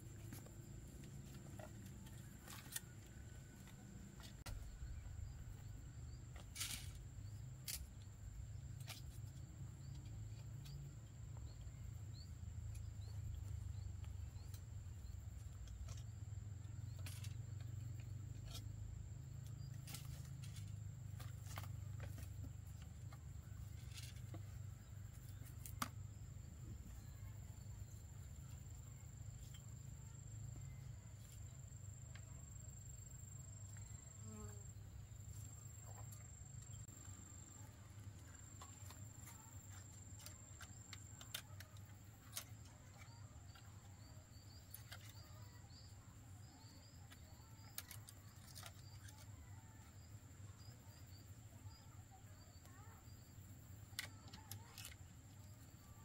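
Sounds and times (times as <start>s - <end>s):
bamboo poles clicking and knocking: 0.0s - 5.6s, 12.6s - 26.3s, 38.1s - 43.8s, 47.1s - 49.4s, 53.8s - 55.4s.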